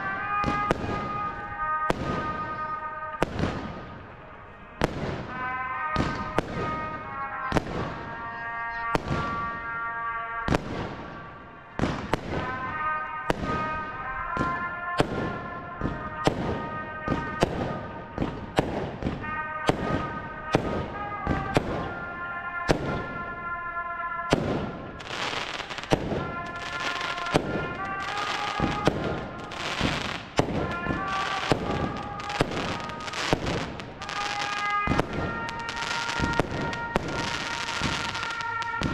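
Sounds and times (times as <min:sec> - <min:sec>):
fireworks launching and bursting: 0:00.0 - 0:09.7, 0:10.4 - 0:23.5, 0:24.2 - 0:38.9
music over loudspeakers: 0:12.3 - 0:38.9
crackle of fireworks stars: 0:24.8 - 0:38.9.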